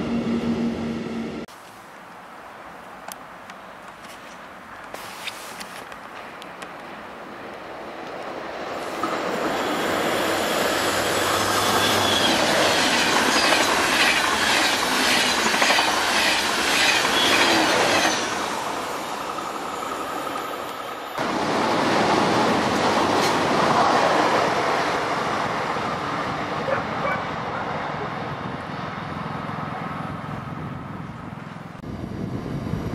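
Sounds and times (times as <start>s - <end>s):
train running through station: 0.0s - 1.5s, 6.2s - 32.9s
high-pitched wheel squeal: 9.7s - 13.6s.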